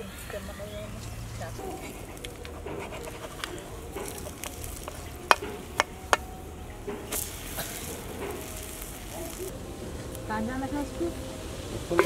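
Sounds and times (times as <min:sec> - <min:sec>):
pancake sizzling on griddle: 0:01.8 - 0:06.3, 0:06.9 - 0:09.6.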